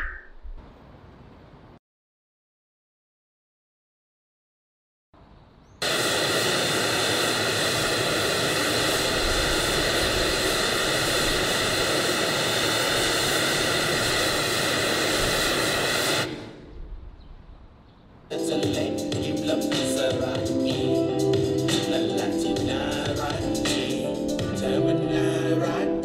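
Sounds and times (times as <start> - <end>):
loud even hiss from speaker: 5.8 - 17.1, 18.3 - 26.0.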